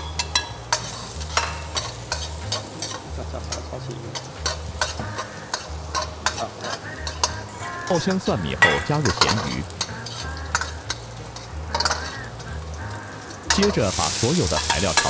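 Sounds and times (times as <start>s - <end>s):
garlic sizzling in hot oil: 0.0s - 15.0s
spatula scraping pan: 0.2s - 3.1s, 4.4s - 7.6s, 8.7s - 14.1s.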